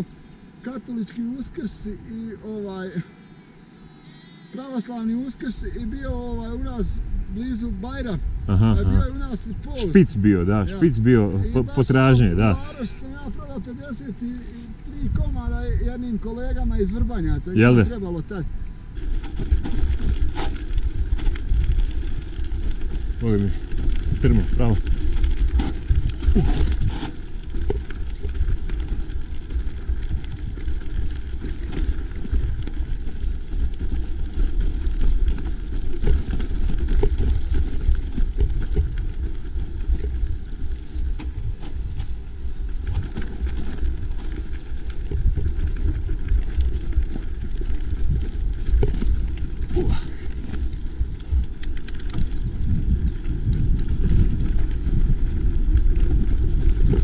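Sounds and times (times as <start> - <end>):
bike rattling: 0.0 - 57.0
bike tyres on stones: 0.0 - 57.0.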